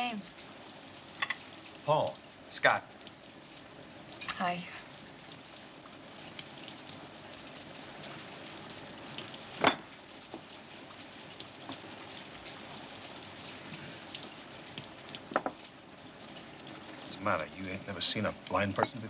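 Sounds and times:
rain hissing: 0.0 - 19.0
tableware clinking: 1.2 - 1.4, 9.6 - 9.9, 15.3 - 15.6, 18.8 - 19.0.

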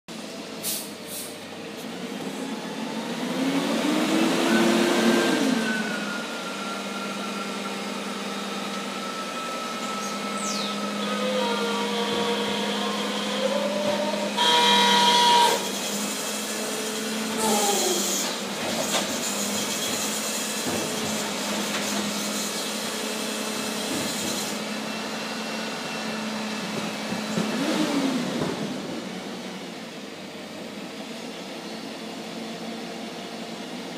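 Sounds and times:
diesel engine revving: 0.2 - 31.3
loud tone: 9.4 - 15.8.

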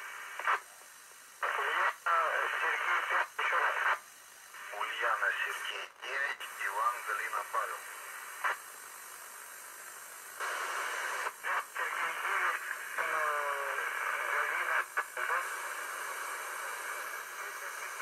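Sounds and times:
radio static hiss: 0.0 - 18.0
faint distant voice on radio: 1.4 - 8.6, 10.4 - 18.0.

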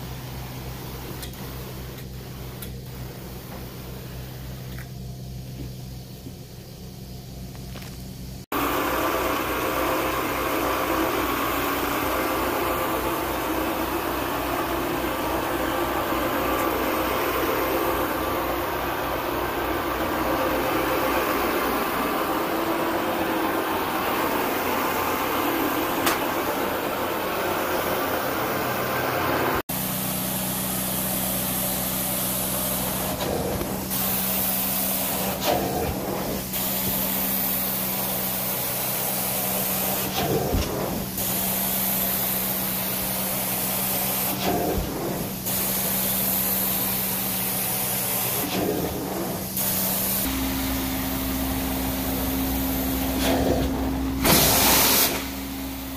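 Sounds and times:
carpet extraction machine running: 7.7 - 55.9.

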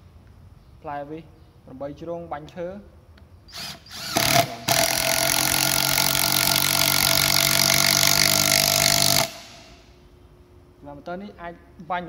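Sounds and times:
impact driver hammering: 3.6 - 9.8.

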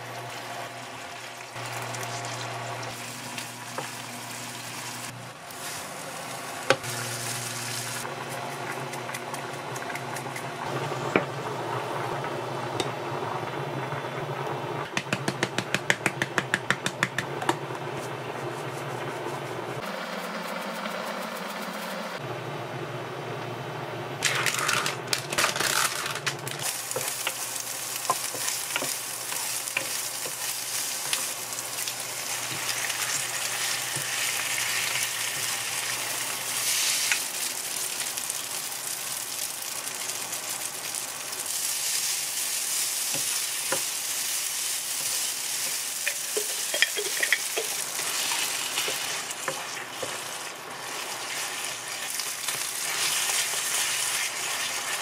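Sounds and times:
food sizzling in a frying pan: 0.0 - 8.1, 25.6 - 55.0
plastic packet crackling: 24.2 - 32.1
wooden spatula scraping a pan: 28.0 - 31.3.

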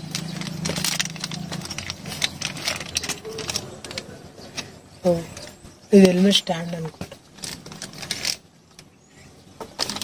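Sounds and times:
plastic bag crinkling: 0.0 - 4.1, 7.0 - 8.5, 9.8 - 10.0.

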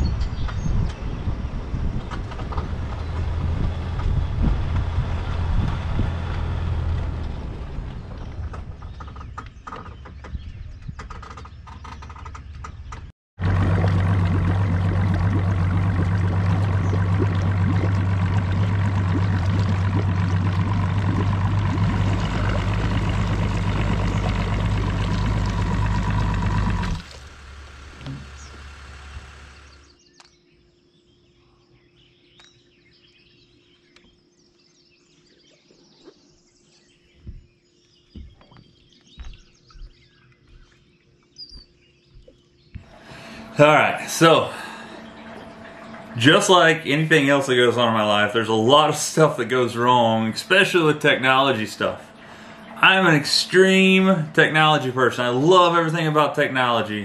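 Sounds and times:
vehicle engine running: 2.1 - 9.4, 11.9 - 30.0, 42.8 - 57.0.

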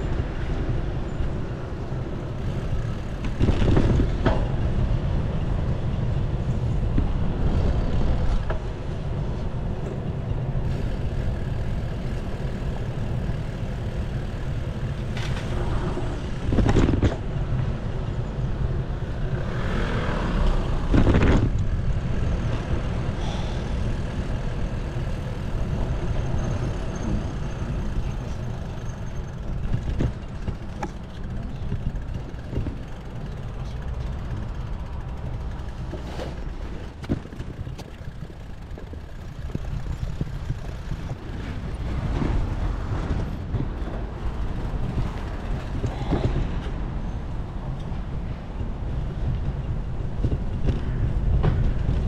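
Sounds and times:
wind and road noise: 0.0 - 52.0.

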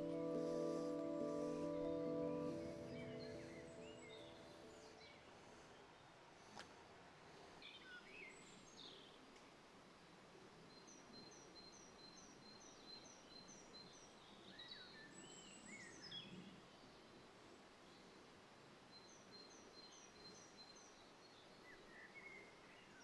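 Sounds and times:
birds chirping and trilling: 0.0 - 5.2
faint click: 6.5 - 6.8, 9.3 - 9.6.

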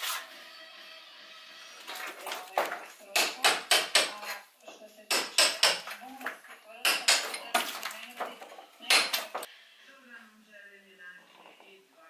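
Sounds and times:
metal tool chipping brick: 2.5 - 4.4, 5.1 - 9.5.

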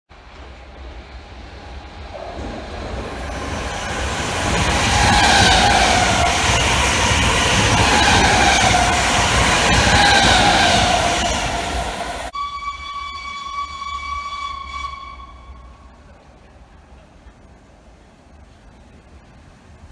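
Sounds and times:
train rumble and wheel noise: 0.1 - 19.9
train whine: 0.1 - 19.9.

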